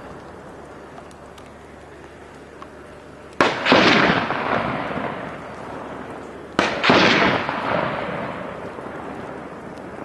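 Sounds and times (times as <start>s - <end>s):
gunshots booming: 3.4s - 6.0s, 6.6s - 9.3s.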